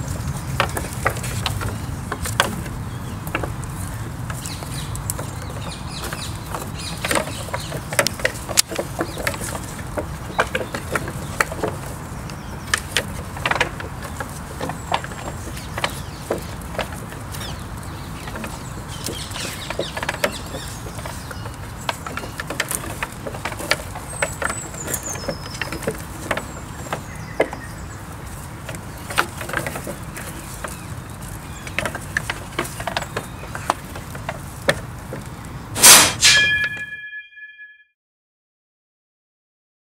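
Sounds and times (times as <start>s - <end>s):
antlers clacking against branches: 0.0s - 36.8s
steady low hiss: 34.9s - 36.6s
loud burst: 35.8s - 36.6s
ringing tones: 36.2s - 37.8s.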